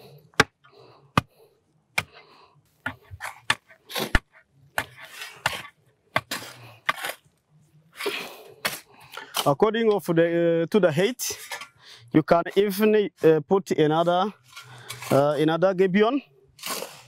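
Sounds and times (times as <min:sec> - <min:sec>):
shovel scraping through soil: 0:02.8 - 0:09.6, 0:14.0 - 0:15.4, 0:16.6 - 0:17.0
shovel striking ground: 0:02.8 - 0:09.6, 0:14.4 - 0:15.4, 0:16.6 - 0:17.0.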